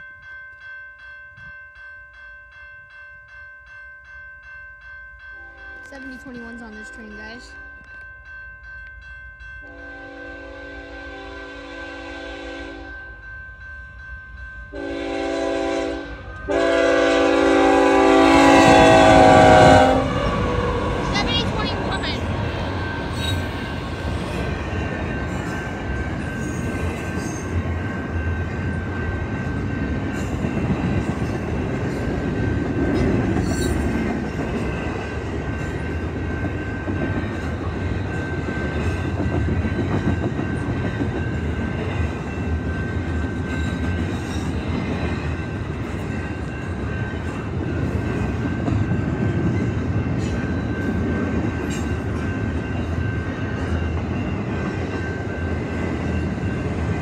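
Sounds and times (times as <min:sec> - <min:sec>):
train wheels rumbling on rail: 0:14.8 - 0:57.0.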